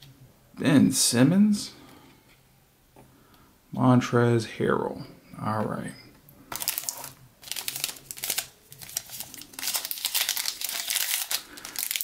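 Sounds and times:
foil wrapper crinkling: 6.5s - 12.0s.

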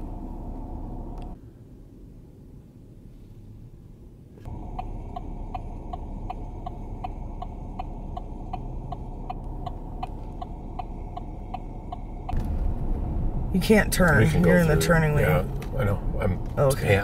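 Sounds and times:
vehicle cabin rumble: 0.0s - 1.4s, 2.9s - 17.0s
car indicator ticking: 4.5s - 12.4s.

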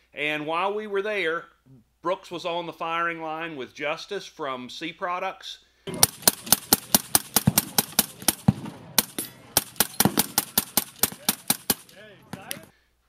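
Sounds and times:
suppressed rifle shots: 5.9s - 12.7s.

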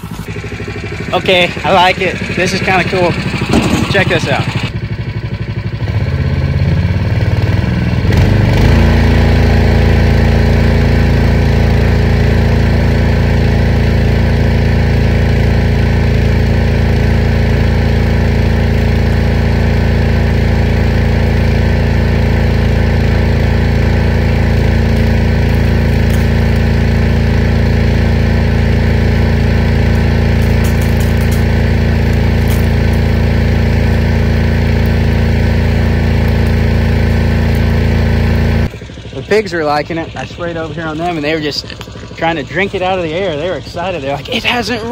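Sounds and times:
water pump engine running: 0.0s - 44.9s.

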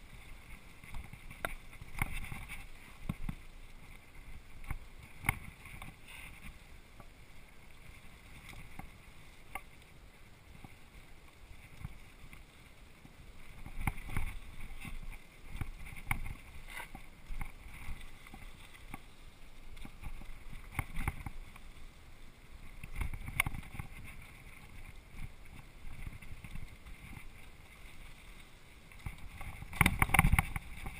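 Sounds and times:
bike tyres rolling on dirt: 0.0s - 30.9s
bike rattling over bumps: 13.3s - 19.1s, 29.0s - 30.9s.

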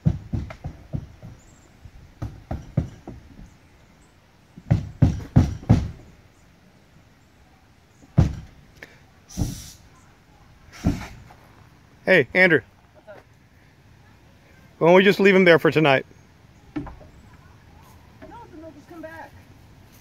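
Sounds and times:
dull knocks and thumps: 0.0s - 3.6s, 4.6s - 6.1s, 8.0s - 8.6s, 16.7s - 17.2s
short hiss: 9.3s - 9.9s, 10.7s - 11.3s.

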